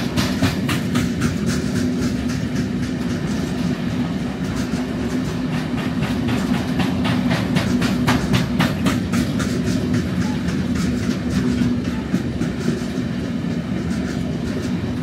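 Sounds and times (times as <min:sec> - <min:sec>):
train wheels rumbling on rail: 0:00.0 - 0:15.0
wheels clicking over rail joints: 0:00.0 - 0:15.0.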